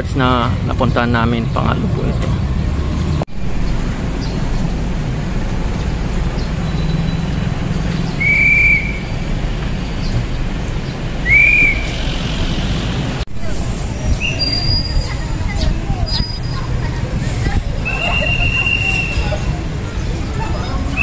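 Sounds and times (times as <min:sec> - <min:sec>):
low road rumble: 0:00.0 - 0:21.0
high whistle-like tones: 0:08.2 - 0:09.2, 0:11.2 - 0:12.0, 0:17.8 - 0:19.4.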